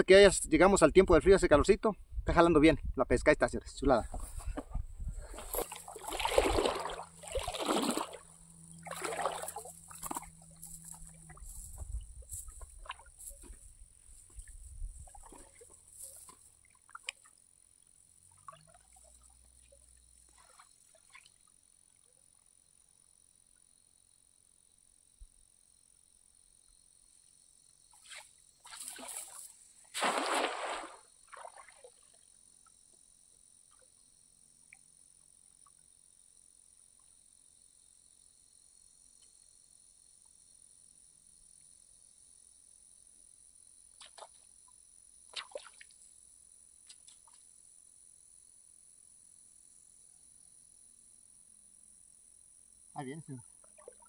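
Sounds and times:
water splashing and sloshing: 0:04.1 - 0:17.4, 0:18.2 - 0:21.4, 0:28.0 - 0:32.2, 0:45.3 - 0:46.1, 0:53.6 - 0:54.0
high insect buzz: 0:04.1 - 0:54.0.

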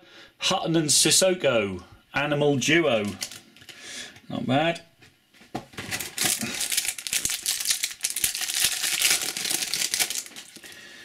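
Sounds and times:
foil wrapper crinkling: 0:03.0 - 0:03.4, 0:05.8 - 0:10.8.

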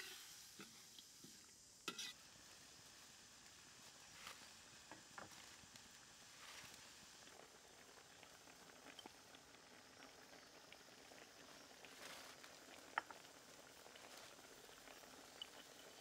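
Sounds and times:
broth simmering in a wok: 0:00.0 - 0:16.0.

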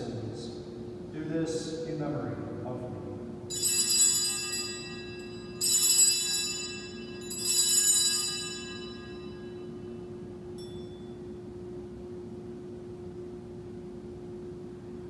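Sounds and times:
altar bells ringing: 0:03.5 - 0:11.4.

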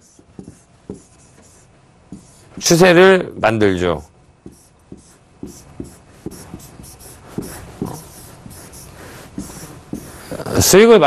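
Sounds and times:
pen scratching on a board: 0:00.0 - 0:02.7, 0:04.4 - 0:10.4.

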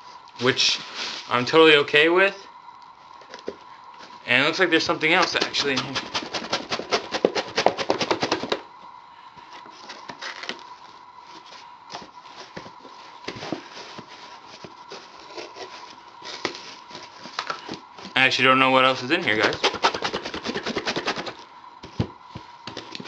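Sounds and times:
faint high hum: 0:00.0 - 0:23.0
cardboard box being handled: 0:11.3 - 0:18.2.

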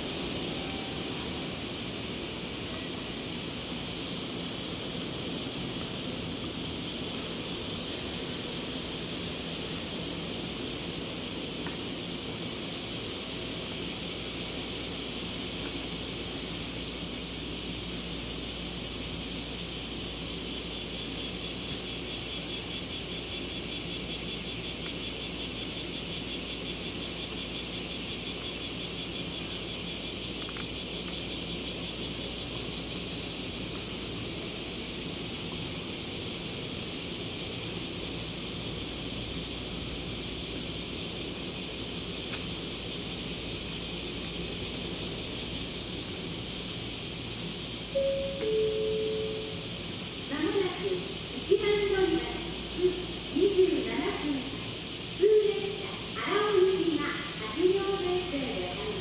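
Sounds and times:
low hum and hiss: 0:00.0 - 0:59.0
fast-pulsing insect buzz: 0:06.8 - 0:18.4.

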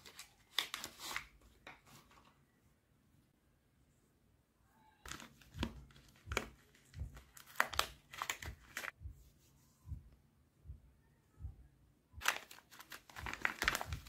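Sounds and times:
paper wrapper tearing and crinkling: 0:00.0 - 0:01.3, 0:07.3 - 0:08.9, 0:12.2 - 0:14.0.

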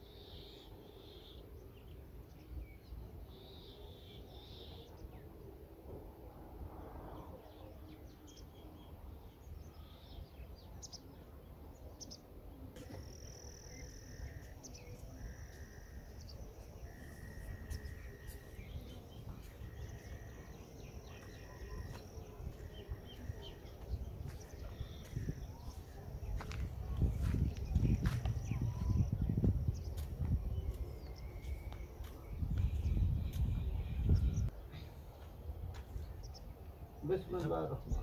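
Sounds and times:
bird chirps: 0:12.8 - 0:34.9
wind rumble on microphone: 0:17.2 - 0:36.6, 0:37.8 - 0:38.0.

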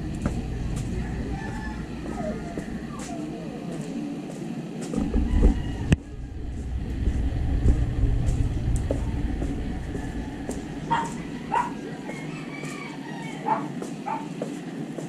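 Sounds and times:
low street rumble: 0:00.0 - 0:15.0
dog barking: 0:10.8 - 0:12.0, 0:13.4 - 0:14.4.

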